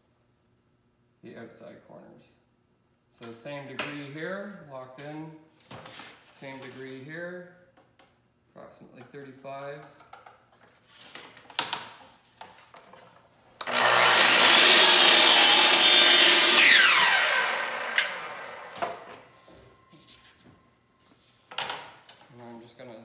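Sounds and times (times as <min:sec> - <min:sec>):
mitre saw cutting: 0:13.6 - 0:18.8
saw blade winding down: 0:13.6 - 0:18.8.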